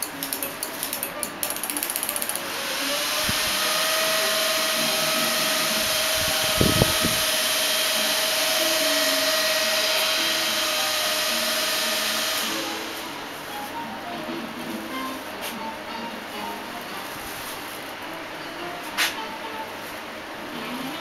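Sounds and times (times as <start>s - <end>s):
electric fans whirring: 0.0s - 21.0s.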